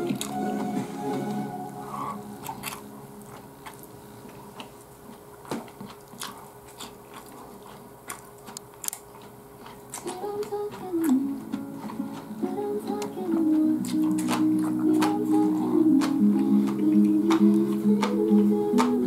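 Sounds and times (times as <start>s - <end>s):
guitar music: 0.0s - 3.2s
man chewing rice: 1.8s - 19.0s.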